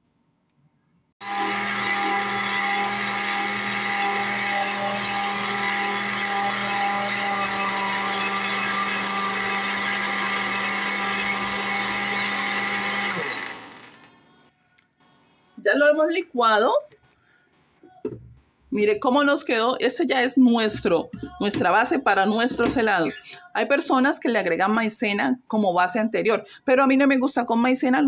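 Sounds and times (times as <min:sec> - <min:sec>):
blender running: 0:01.2 - 0:14.1.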